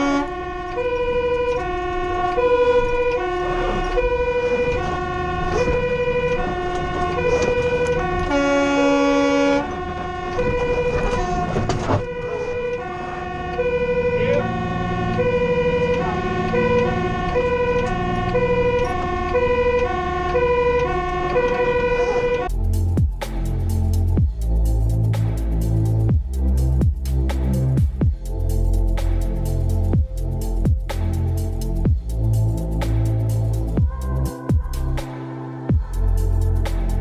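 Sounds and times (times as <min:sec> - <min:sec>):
two-tone siren: 0:00.0 - 0:22.5
diesel engine rumbling: 0:00.0 - 0:37.0.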